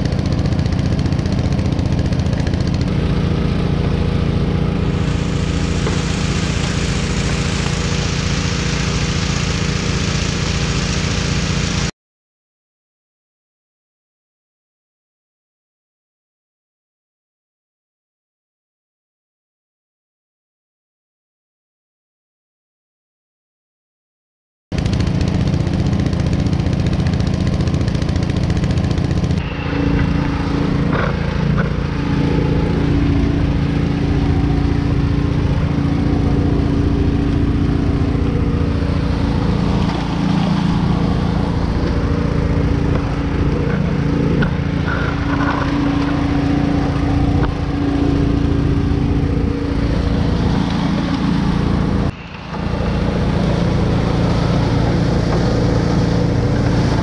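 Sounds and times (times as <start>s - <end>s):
small petrol engine running: 0.0s - 11.9s, 24.7s - 57.0s.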